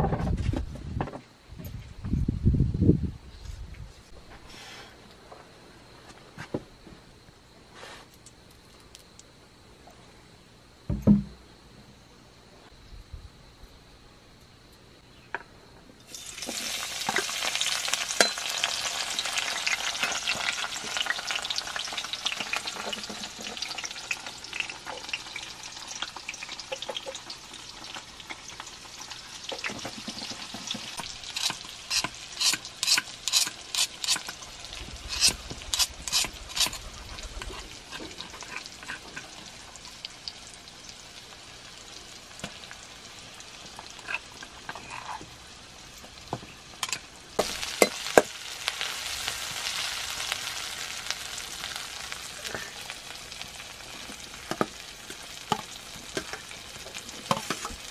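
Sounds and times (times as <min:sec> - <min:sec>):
food sizzling in wok: 0:16.0 - 0:57.9
spoon scraping wok: 0:30.2 - 0:34.4, 0:35.0 - 0:39.4, 0:44.0 - 0:45.3.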